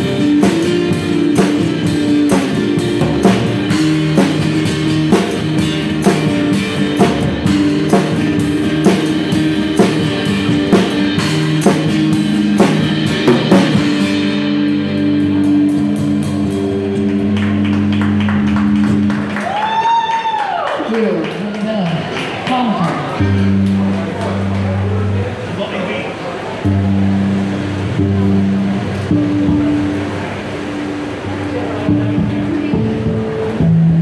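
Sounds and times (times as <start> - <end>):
strummed acoustic guitars: 0.0 - 19.4, 26.3 - 34.0
drum kit beat: 0.0 - 19.6, 26.7 - 34.0
upright bass: 0.0 - 19.6, 23.0 - 25.9, 26.6 - 34.0
electric guitar: 0.0 - 34.0.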